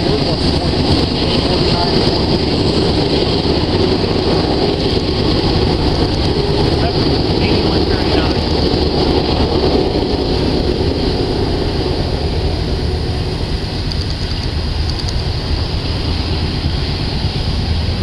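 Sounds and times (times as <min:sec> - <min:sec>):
freight train wheels rumbling: 0:00.0 - 0:18.0.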